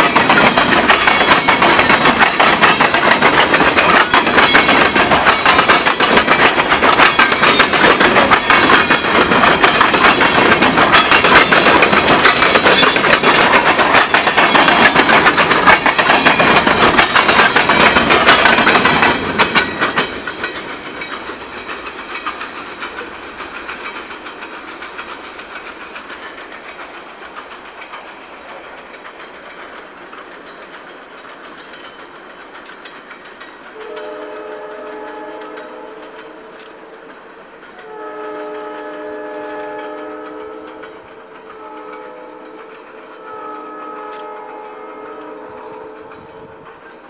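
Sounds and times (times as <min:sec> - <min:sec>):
freight train wheels rumbling: 0:00.0 - 0:47.0
train horn: 0:33.8 - 0:37.0, 0:37.8 - 0:46.6.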